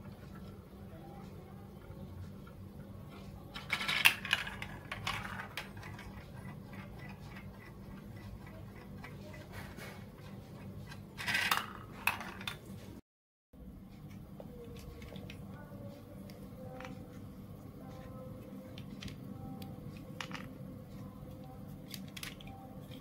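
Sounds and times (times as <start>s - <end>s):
marble clattering along plastic tracks: 3.5s - 12.7s.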